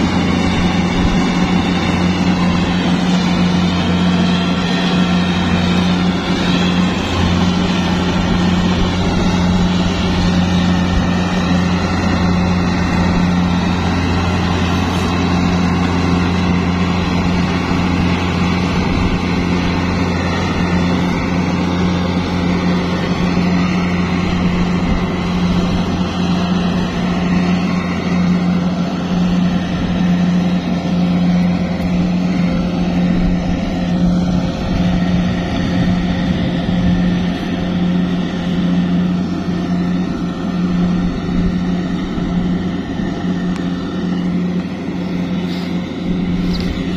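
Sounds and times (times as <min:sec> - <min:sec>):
diesel engine droning: 0:00.0 - 0:46.9.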